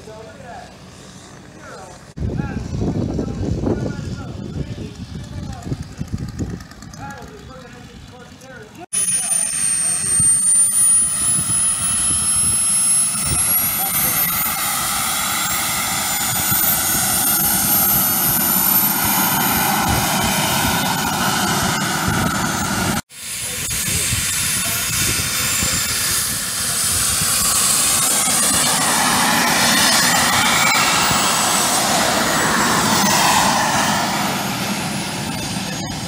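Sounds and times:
model jet engine whine: 0.0 - 36.0
high whine sliding down: 9.0 - 36.0.

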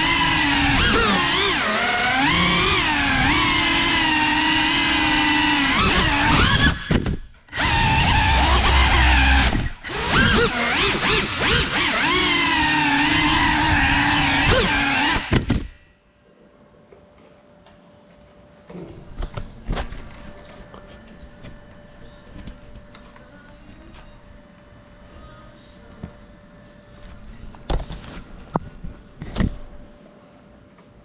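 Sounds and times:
drone motors whining: 0.0 - 15.8.

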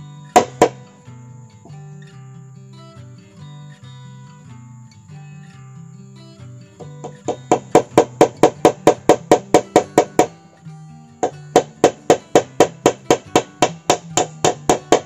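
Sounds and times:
acoustic guitar music: 0.0 - 15.0
hand tool strikes: 0.4 - 0.9, 6.8 - 10.4, 11.2 - 15.0.

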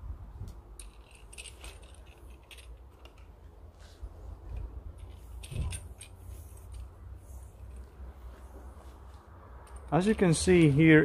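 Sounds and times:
wind rumble on microphone: 0.0 - 0.8, 4.3 - 5.9
cable connectors clicking: 0.5 - 3.5, 4.4 - 7.0.

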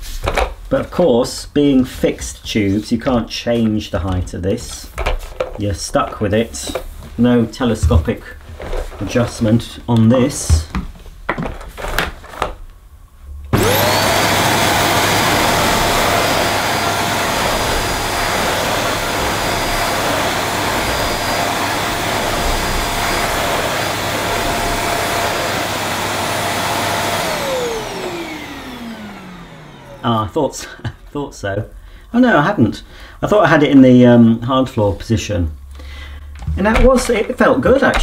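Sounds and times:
vacuum cleaner motor whining: 13.5 - 30.4.

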